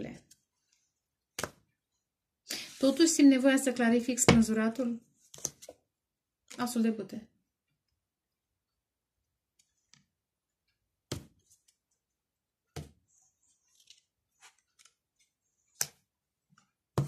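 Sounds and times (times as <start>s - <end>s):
cards sliding and rustling: 13.1s - 16.7s.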